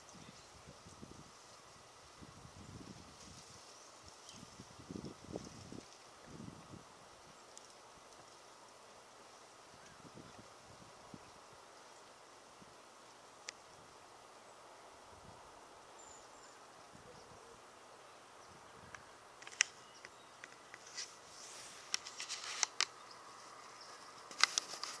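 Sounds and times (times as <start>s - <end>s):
faint outdoor hiss: 0.0s - 25.0s
sharp clicks: 18.9s - 20.9s, 21.9s - 23.0s, 24.3s - 25.0s
brief rustling: 19.4s - 25.0s.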